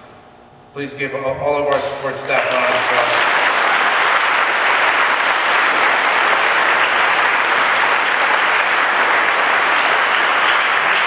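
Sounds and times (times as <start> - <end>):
crowd applauding: 2.2 - 11.0.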